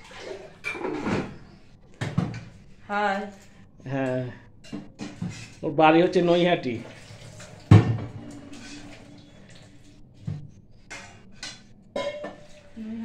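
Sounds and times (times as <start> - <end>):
metal cookware clattering: 0.6 - 1.4, 6.9 - 9.1, 10.8 - 12.8.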